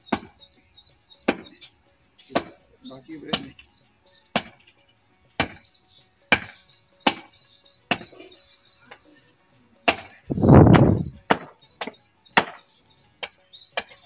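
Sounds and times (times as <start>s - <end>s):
birds chirping: 0.0s - 14.0s
hatchet chopping wood: 0.1s - 0.4s, 1.2s - 1.7s, 2.3s - 2.6s, 3.3s - 3.7s, 4.3s - 4.8s, 5.4s - 5.7s, 6.3s - 8.3s, 9.8s - 14.0s.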